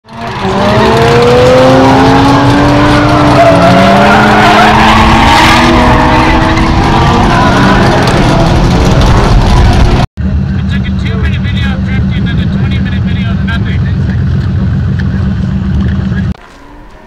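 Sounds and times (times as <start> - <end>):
car engines at high revs: 0.0 - 16.4
tires squealing on asphalt: 0.1 - 10.0.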